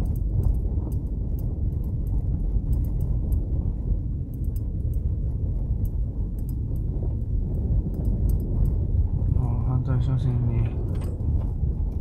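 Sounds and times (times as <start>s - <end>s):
car cabin road rumble: 0.0s - 12.0s
faint high ticks: 5.8s - 6.9s, 7.9s - 8.8s.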